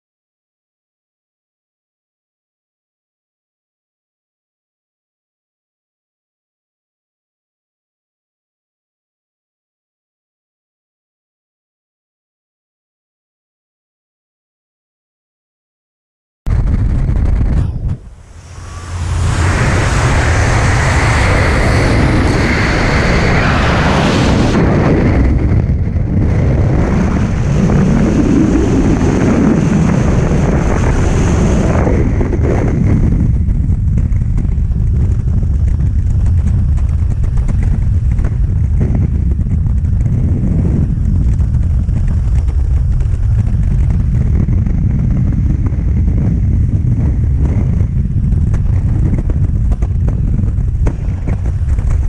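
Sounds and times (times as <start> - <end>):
wind buffeting microphone: 16.5 - 52.0.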